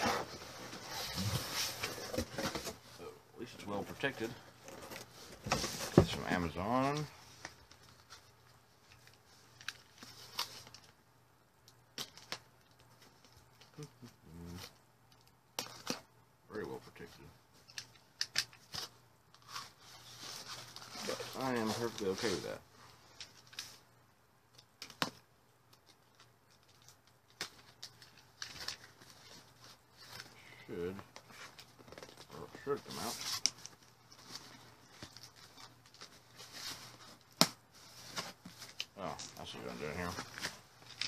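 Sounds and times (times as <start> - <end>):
cardboard rustling: 0.0 - 3.0, 3.8 - 8.4, 18.6 - 23.8
cardboard and tape crackling: 17.7 - 23.8, 24.8 - 41.0.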